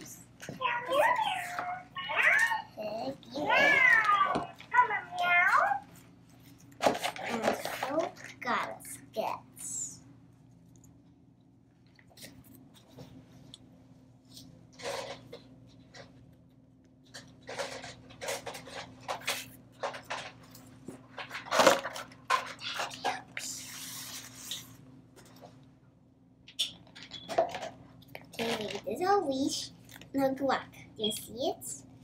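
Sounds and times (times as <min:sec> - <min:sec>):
plastic toys clicking and clattering: 0:06.7 - 0:08.5, 0:17.1 - 0:23.5, 0:26.5 - 0:29.0.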